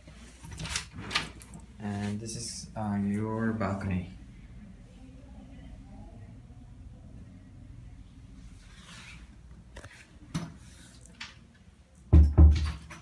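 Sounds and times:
low steady hum: 1.4 - 12.1.

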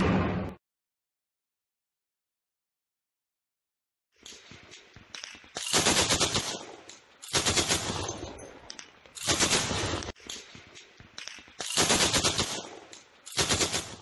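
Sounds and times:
automatic gunfire bursts: 5.6 - 8.2, 9.2 - 10.1, 11.7 - 14.0
scattered gunshots: 5.6 - 8.4, 9.2 - 10.2, 11.7 - 14.0.

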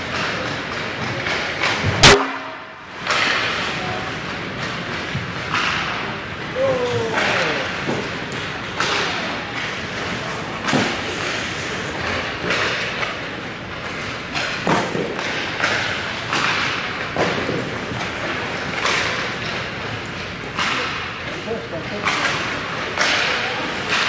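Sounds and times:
hockey pucks striking sharply: 0.1 - 24.0
skate blades scraping ice: 9.7 - 19.4.

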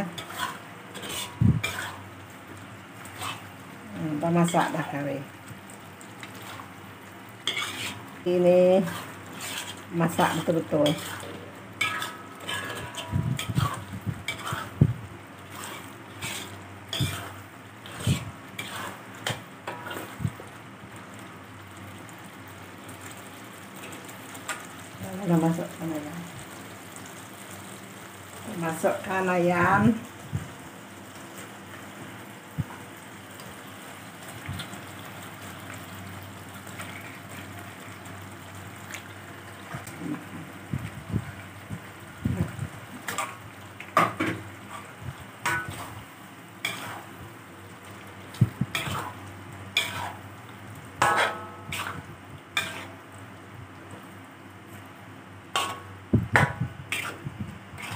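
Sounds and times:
steady low hum: 0.0 - 20.6, 39.2 - 57.9
curry paste frying: 0.0 - 57.9
metal spatula scraping a wok: 0.1 - 2.1, 3.0 - 3.5, 6.3 - 6.7, 7.4 - 8.1, 8.8 - 14.8, 15.5 - 20.2, 46.6 - 47.1, 48.7 - 50.3, 51.0 - 53.0, 55.5 - 57.2.

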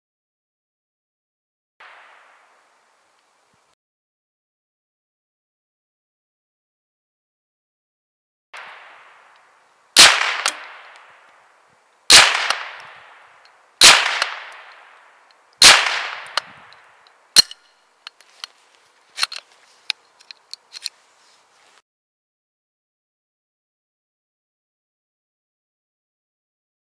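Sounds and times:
sharp crack: 1.8 - 2.5, 8.6 - 11.4, 12.1 - 17.7
rifle shots with echo: 10.0 - 11.2, 12.1 - 16.5
rifle handling clicks: 19.2 - 21.0.

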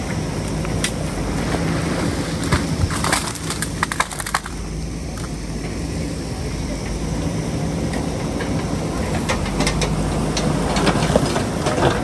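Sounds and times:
diesel engine running: 0.0 - 12.0
stones knocking and clattering: 2.8 - 4.6.

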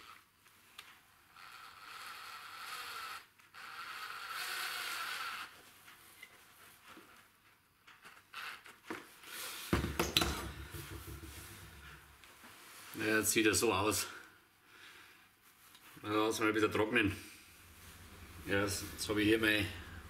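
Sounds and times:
cordless drill driving screw: 1.3 - 5.6
knocks and clatter: 9.8 - 12.1.

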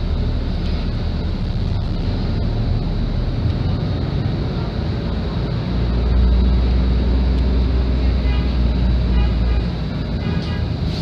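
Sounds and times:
bus diesel engine running: 0.0 - 11.0
road noise: 0.0 - 11.0.

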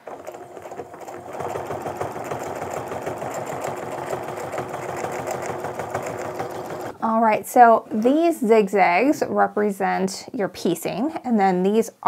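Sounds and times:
sewing machine running: 0.0 - 7.0.

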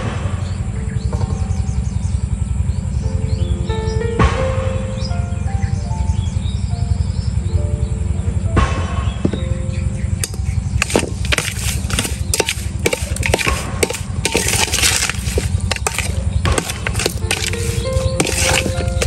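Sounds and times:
sharp knocks and clatter: 10.2 - 19.0.

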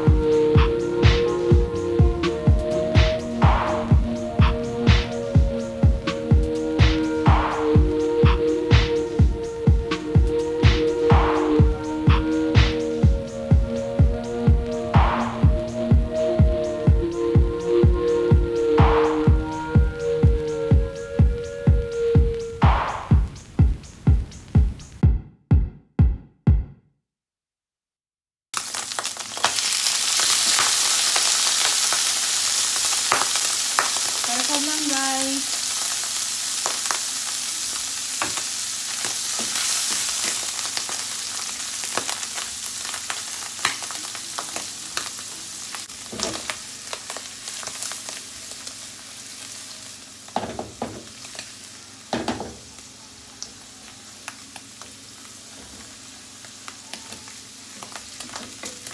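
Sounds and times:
electronic music: 0.0 - 25.3
mushrooms sizzling in a pan: 28.6 - 58.9.

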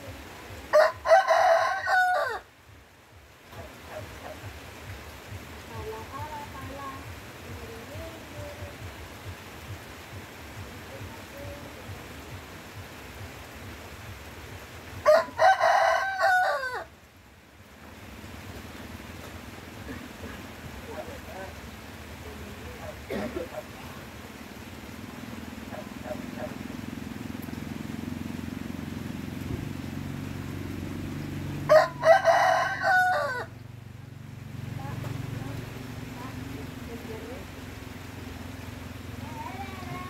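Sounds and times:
rain on foliage: 0.0 - 40.0
rooster crowing: 0.7 - 2.5, 15.0 - 16.9, 31.7 - 33.6.

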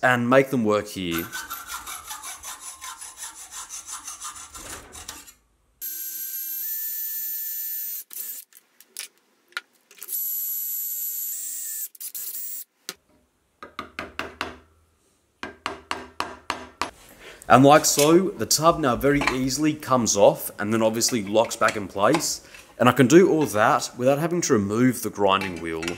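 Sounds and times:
metal rasping strokes: 1.1 - 5.4
electric drill whining into steel: 5.8 - 8.5, 10.0 - 12.7.

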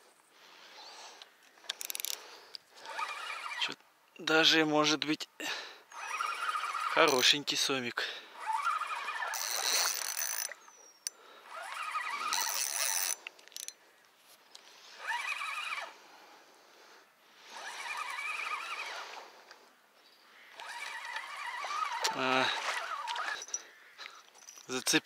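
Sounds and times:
wavering animal calls: 20.3 - 24.1.

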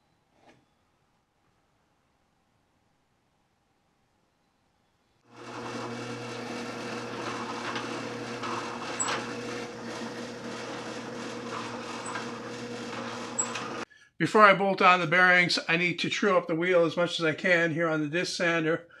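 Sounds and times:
drill bit scraping through wood: 5.3 - 13.9
drill press motor hum: 5.3 - 13.9.

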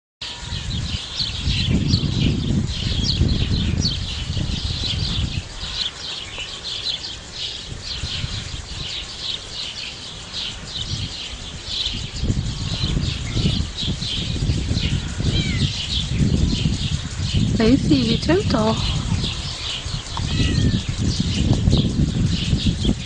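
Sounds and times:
birds chirping: 0.2 - 23.0.

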